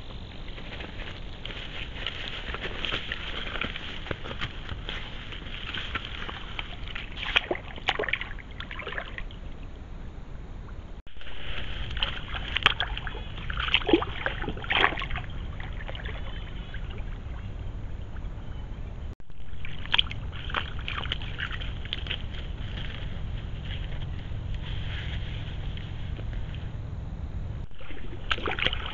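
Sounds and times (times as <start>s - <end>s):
beaver splashing in water: 1.8s - 9.5s, 11.1s - 18.1s, 19.4s - 25.8s, 27.6s - 28.9s.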